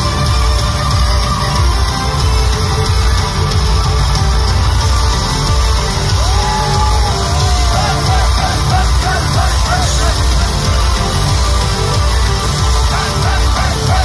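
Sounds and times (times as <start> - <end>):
heavy pulsing bass beat: 0.0 - 14.0
live synthwave band: 0.0 - 14.0.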